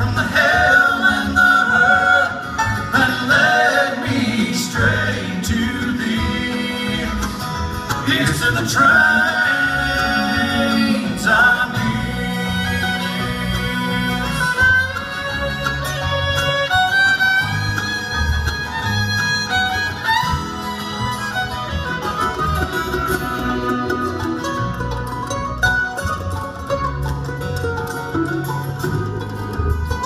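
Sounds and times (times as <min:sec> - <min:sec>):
bluegrass band playing: 0:00.0 - 0:30.0
fiddle long held notes: 0:09.1 - 0:30.0.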